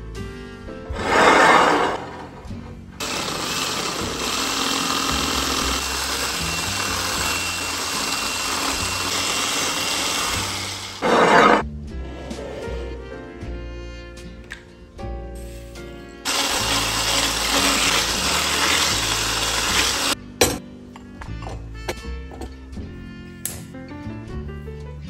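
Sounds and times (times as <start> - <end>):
soft background music: 0.0 - 1.1, 11.6 - 25.0
electric hand mixer whirring: 3.0 - 11.6, 16.2 - 20.2.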